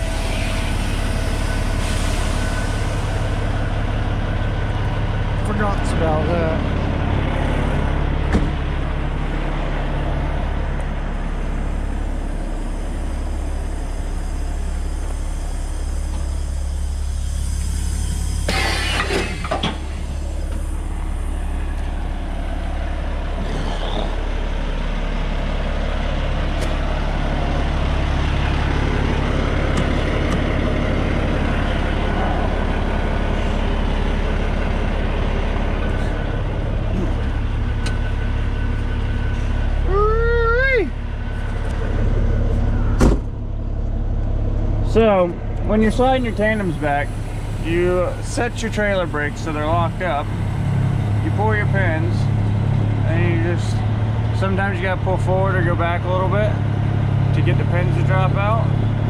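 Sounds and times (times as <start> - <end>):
air brake hissing: 0.0 - 3.8, 13.0 - 21.6, 46.0 - 49.5
diesel truck engine idling: 0.0 - 59.0.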